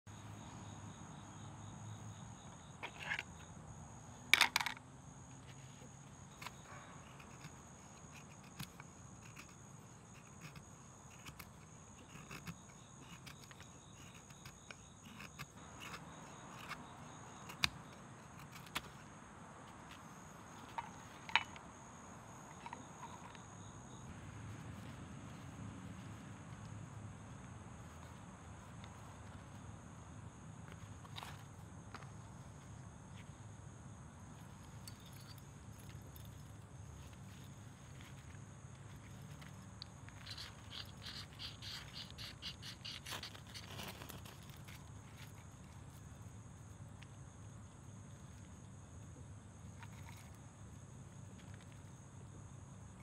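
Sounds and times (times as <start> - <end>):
knife scraping wood: 5.8 - 19.1, 39.4 - 44.9.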